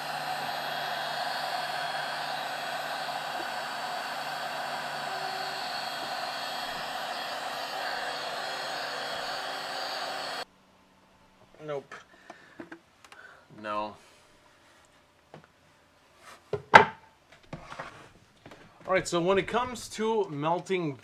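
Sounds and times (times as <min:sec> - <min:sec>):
heat gun blowing hot air: 0:00.0 - 0:10.4.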